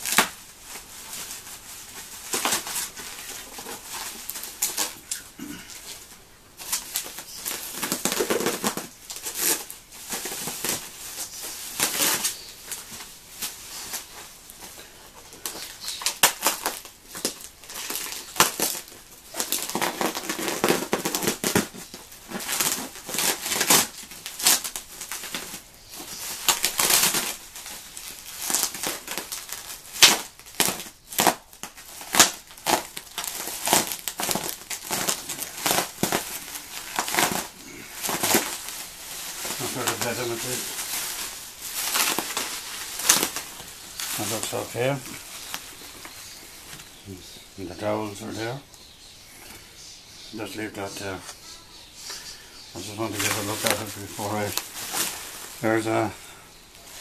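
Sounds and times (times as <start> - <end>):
bubble wrap crinkling: 0.0 - 49.1, 50.2 - 57.0.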